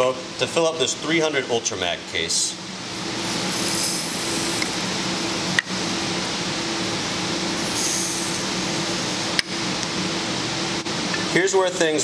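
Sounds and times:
background hum and hiss: 0.0 - 12.0
powder trickling into funnel: 2.9 - 5.6.

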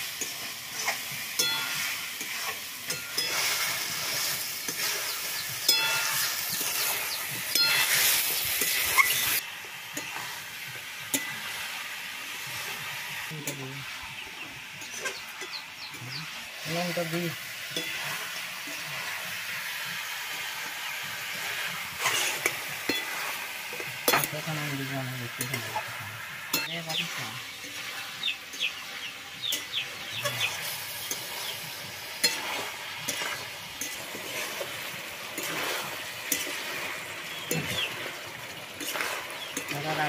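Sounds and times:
metal spatula scraping a pan: 0.0 - 11.7, 14.7 - 40.0
chicken sizzling in a wok: 0.0 - 40.0.

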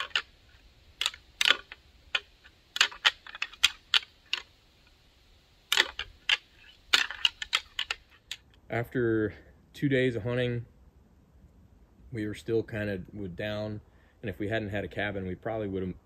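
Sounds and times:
antlers clacking together: 0.0 - 0.3, 1.0 - 4.5, 5.7 - 8.4.

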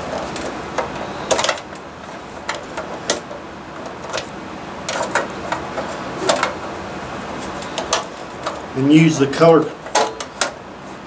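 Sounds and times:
wire connectors clicking on metal box: 9.8 - 10.6.

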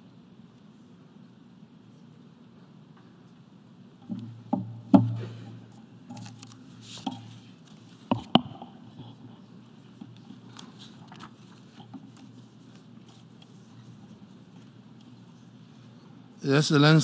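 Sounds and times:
low steady hum: 0.0 - 17.0
microphone handling thumps: 4.0 - 5.8.

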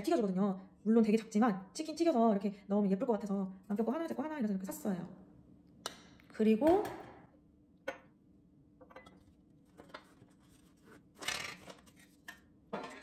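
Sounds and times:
glassware handling noise: 8.8 - 9.2.

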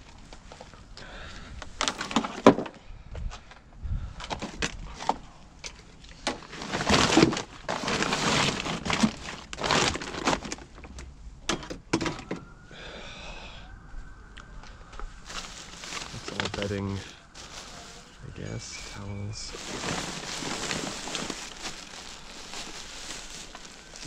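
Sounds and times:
knocks and clatters of rubbish: 1.8 - 2.8, 6.2 - 12.4, 15.3 - 18.1, 18.8 - 24.0
bags rustling: 6.4 - 10.8, 15.2 - 24.0.

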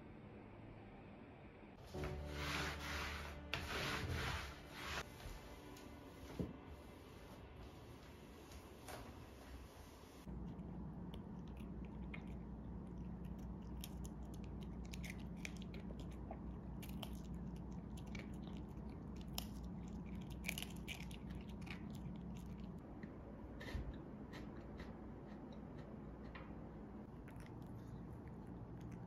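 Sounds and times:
dog gnawing a chew stick: 10.4 - 22.8.

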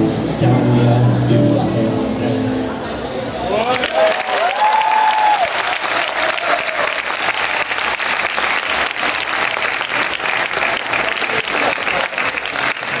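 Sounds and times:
audience applauding: 3.5 - 13.0.

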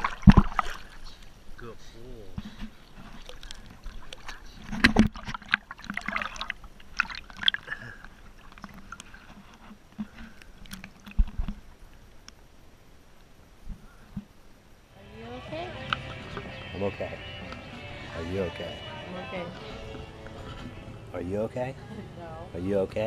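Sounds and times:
sea water sloshing and splashing: 0.0 - 1.4, 2.4 - 11.7.

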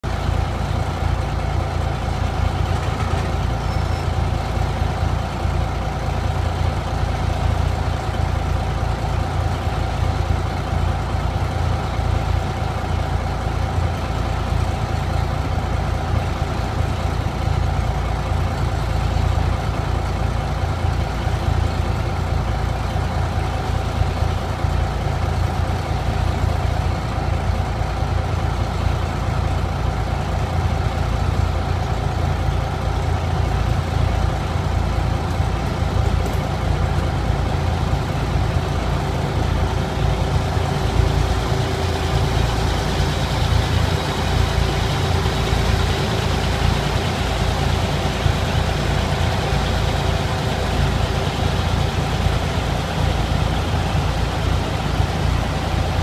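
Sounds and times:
locomotive engine rumble: 0.0 - 56.0.

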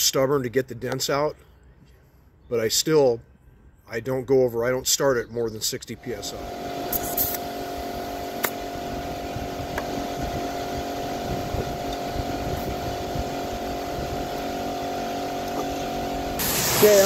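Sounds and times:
small motor humming: 6.0 - 17.0.

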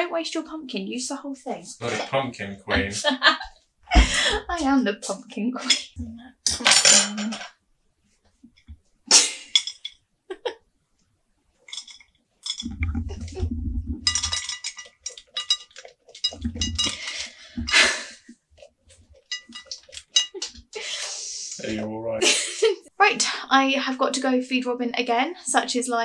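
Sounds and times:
clinks against ceramic bowl: 14.1 - 17.1, 19.3 - 20.6.

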